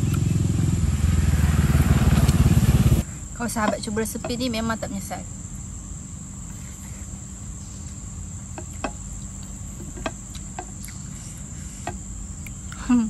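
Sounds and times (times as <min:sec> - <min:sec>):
insects chirring: 0:00.0 - 0:13.0
chewing clicks: 0:10.2 - 0:11.1.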